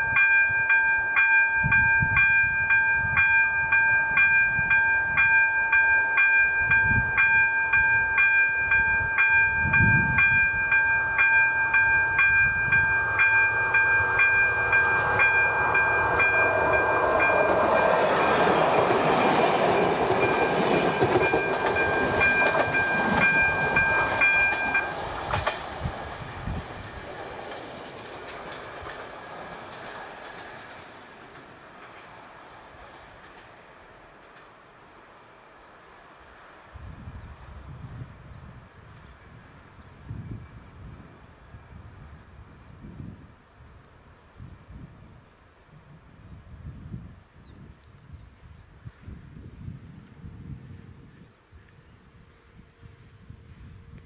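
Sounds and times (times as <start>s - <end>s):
level crossing bell ringing: 0.0s - 18.9s, 20.2s - 24.9s
passenger train rumbling: 0.0s - 54.0s.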